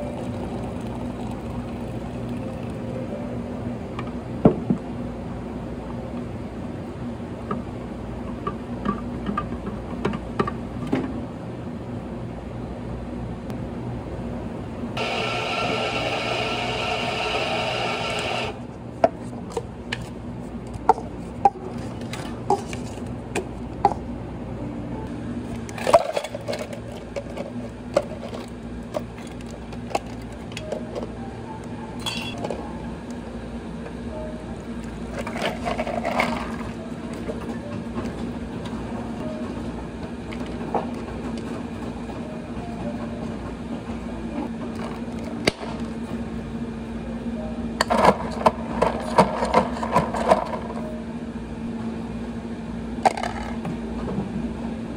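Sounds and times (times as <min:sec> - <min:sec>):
steady low hum: 0:00.0 - 0:16.2, 0:18.5 - 0:54.9
dishes and glassware clinking: 0:32.0 - 0:32.6.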